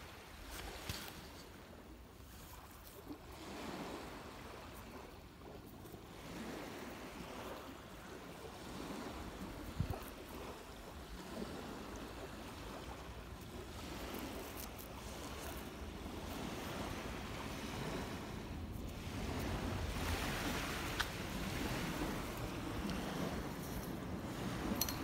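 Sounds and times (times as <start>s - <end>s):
waves washing on sandy shore: 0.0s - 25.0s
wind: 0.0s - 25.0s.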